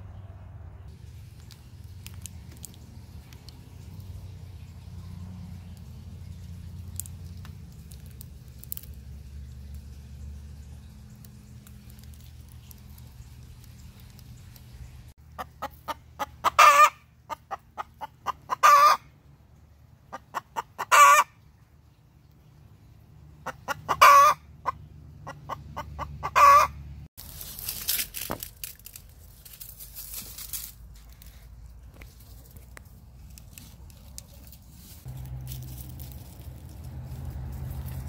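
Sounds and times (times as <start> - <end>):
hen cackling: 15.3 - 19.1, 20.1 - 21.4, 23.4 - 26.9.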